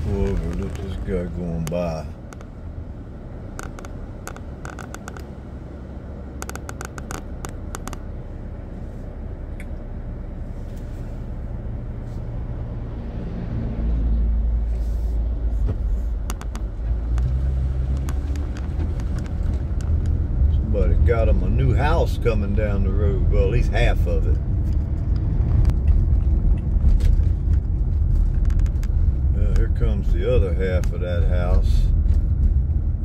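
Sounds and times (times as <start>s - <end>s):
diesel truck engine drone: 0.0s - 33.0s.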